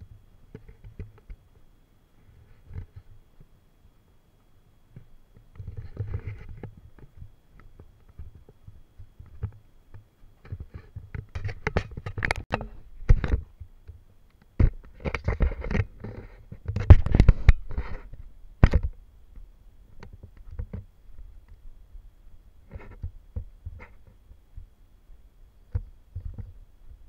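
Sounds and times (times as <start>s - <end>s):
wind noise on microphone: 14.6s - 27.0s.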